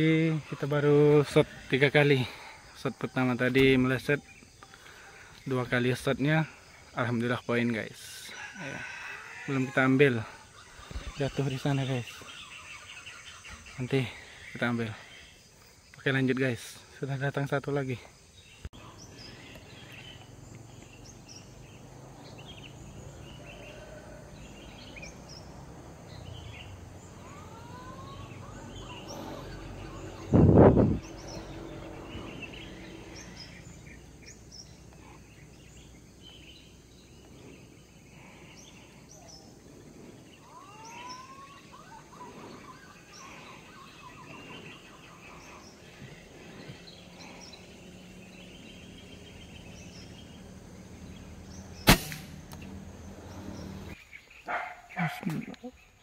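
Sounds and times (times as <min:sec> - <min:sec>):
birds chirping: 0:00.0 - 0:56.0
whistled bird calls: 0:40.4 - 0:47.7.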